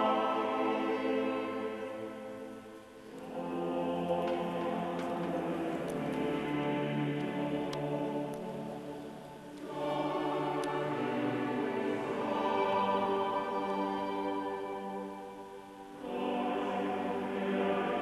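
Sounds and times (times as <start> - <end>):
choir singing held chords: 0.0 - 18.0.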